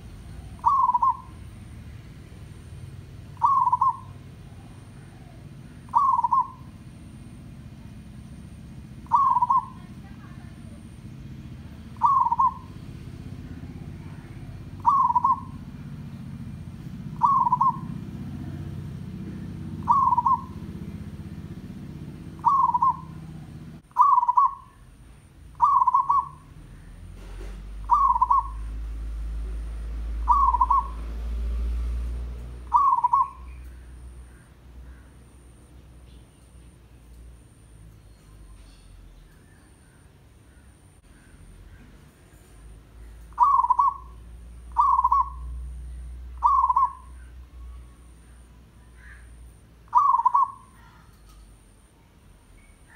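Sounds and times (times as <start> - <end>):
dove cooing: 0.0 - 1.8, 2.6 - 7.4, 8.8 - 11.0, 11.6 - 24.9, 25.5 - 26.9, 27.8 - 28.8, 29.4 - 31.2, 32.6 - 35.6, 43.0 - 51.7.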